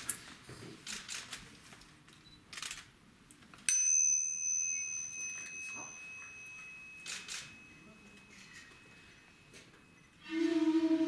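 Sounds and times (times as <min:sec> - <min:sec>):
small metal bell ringing: 0:03.7 - 0:10.3.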